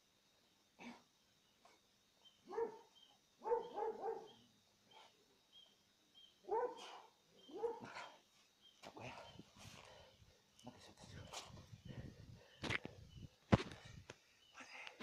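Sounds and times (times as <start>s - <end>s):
dog barking: 2.5s - 4.4s, 6.5s - 8.1s.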